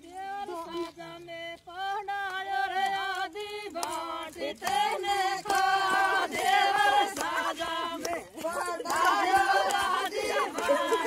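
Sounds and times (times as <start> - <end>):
women singing together: 0.0 - 11.0.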